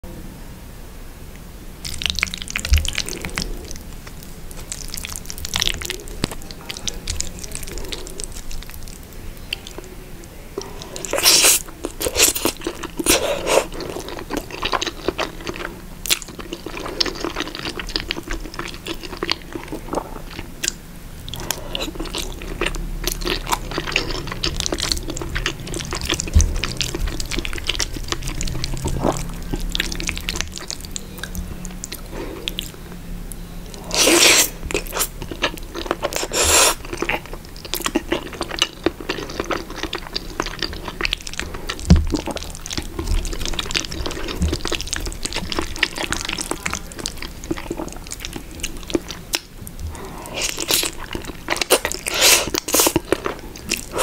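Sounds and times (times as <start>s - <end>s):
wet chewing: 1.8s - 54.0s
slurping spaghetti: 10.6s - 20.5s, 21.3s - 31.0s, 33.7s - 54.0s.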